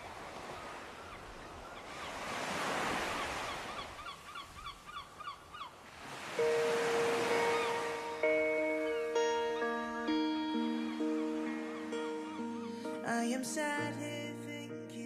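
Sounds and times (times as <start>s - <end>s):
surf washing on a beach: 0.0s - 14.0s.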